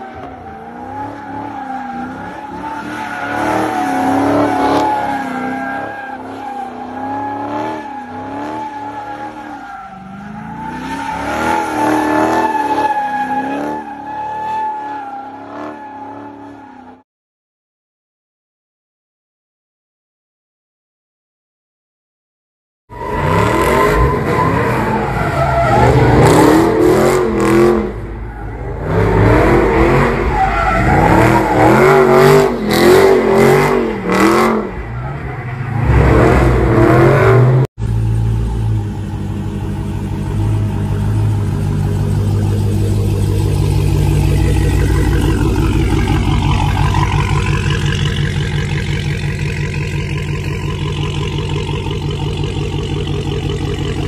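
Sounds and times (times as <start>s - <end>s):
car engine revving hard: 23.1s - 28.0s, 30.8s - 34.7s.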